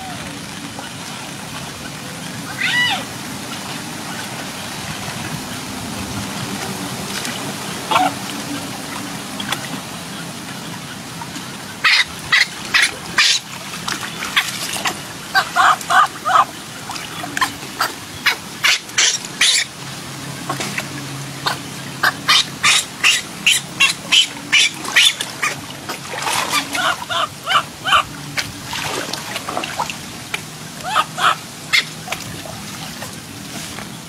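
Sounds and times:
baby monkey squealing: 22.0s - 25.2s.

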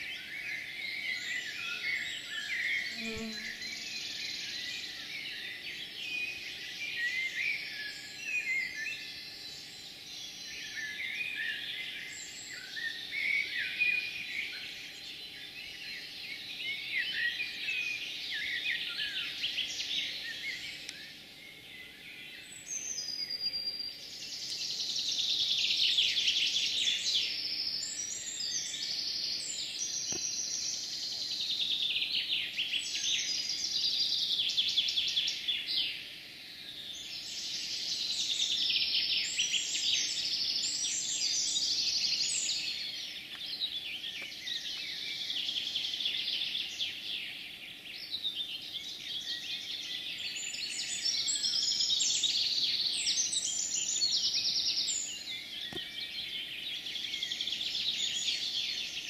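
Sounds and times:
songbirds singing: 0.0s - 59.0s.

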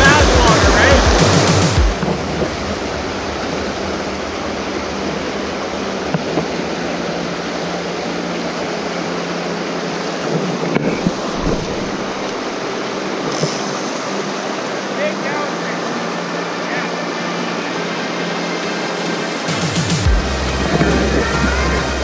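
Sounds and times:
river rushing over rocks: 0.0s - 22.0s.

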